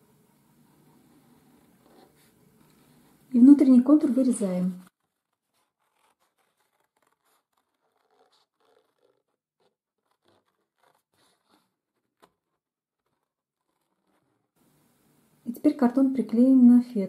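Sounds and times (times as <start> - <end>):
scissors cutting cardboard: 3.6 - 14.5.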